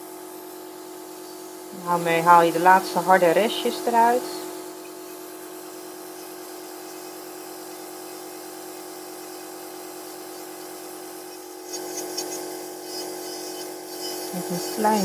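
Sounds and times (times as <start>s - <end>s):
electric nail drill whining: 0.0s - 15.0s
burr grinding callus: 11.4s - 15.0s.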